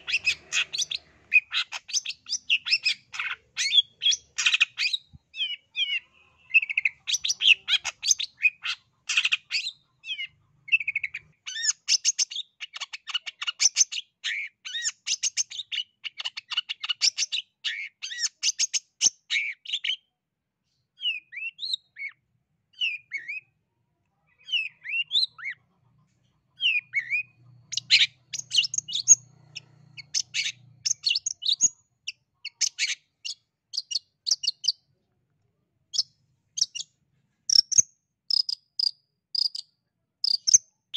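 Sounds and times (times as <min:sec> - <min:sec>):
shrike chattering song: 0:00.0 - 0:12.1, 0:37.5 - 0:39.6.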